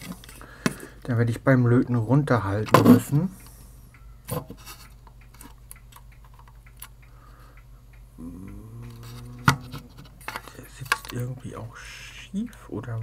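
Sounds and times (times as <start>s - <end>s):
low mains hum: 0.0s - 13.0s
low steady tone: 8.1s - 11.4s.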